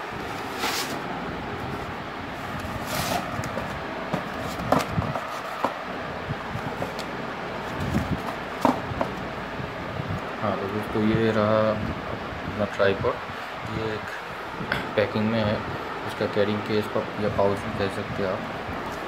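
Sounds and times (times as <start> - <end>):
steady background noise: 0.0 - 19.0
cardboard box handled: 2.7 - 5.8, 6.6 - 9.2.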